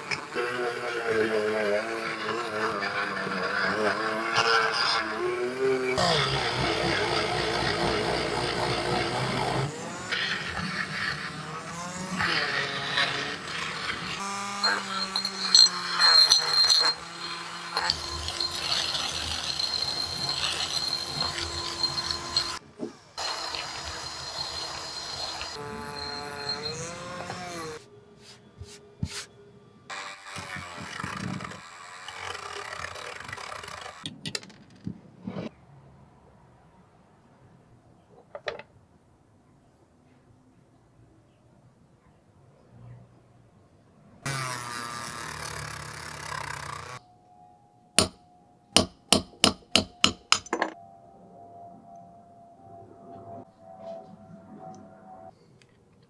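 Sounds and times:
rotary tool whining: 0.0 - 27.9, 29.9 - 34.1, 44.3 - 47.0
hammer striking steel punch: 48.0 - 48.2, 48.8 - 50.8.

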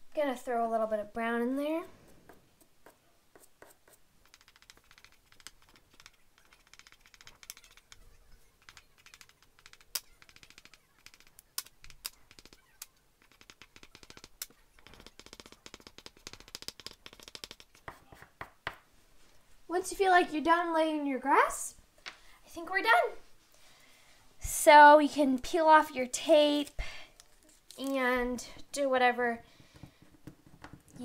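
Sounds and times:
chalk pastel scratching paper: 2.0 - 18.5
sharp taps: 4.2 - 18.8.

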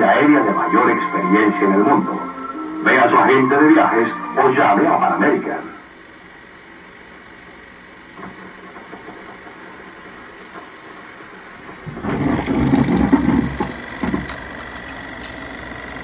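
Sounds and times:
thin high tone: 0.0 - 5.9
film projector running: 5.8 - 16.0.

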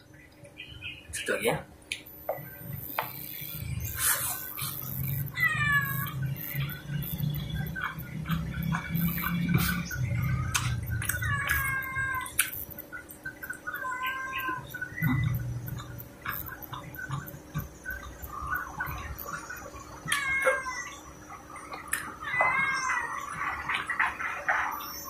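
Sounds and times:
cat meowing: 5.1 - 6.3, 10.3 - 12.4, 13.7 - 15.3, 20.0 - 21.1, 22.0 - 23.7
wet chewing and lip-smacking: 7.8 - 13.6, 14.7 - 20.6, 21.3 - 22.2.

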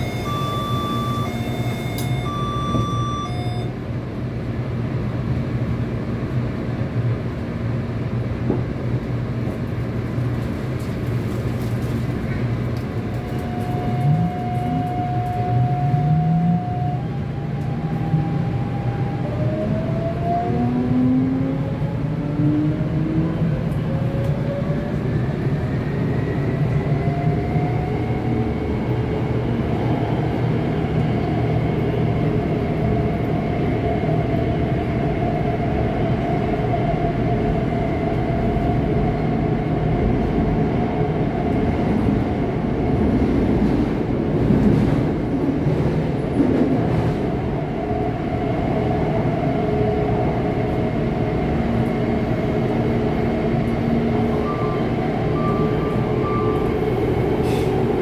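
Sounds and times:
traction inverter whine: 0.0 - 4.0
train rumbling in tunnel: 0.0 - 58.0.

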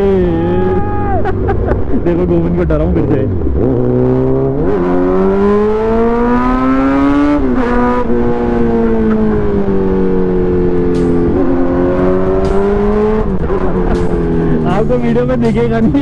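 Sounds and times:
superbike engine accelerating: 2.2 - 16.0.

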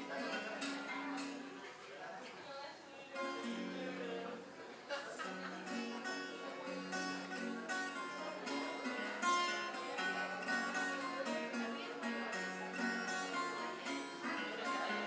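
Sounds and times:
acoustic guitar plucked notes: 0.0 - 1.4, 3.2 - 4.4, 5.2 - 15.0.

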